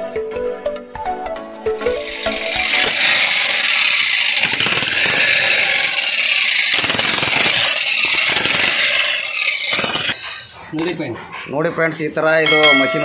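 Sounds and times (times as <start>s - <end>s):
demolition breaker hammering concrete: 2.1s - 10.2s.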